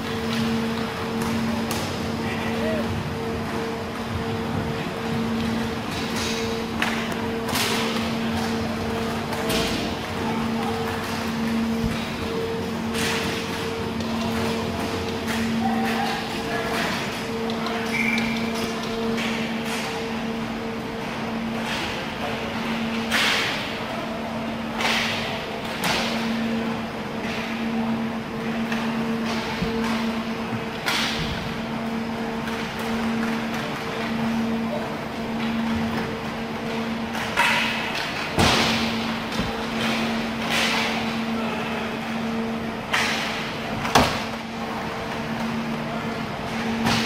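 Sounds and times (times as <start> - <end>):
steady hum: 0.0 - 47.0
hockey sticks: 37.1 - 41.2.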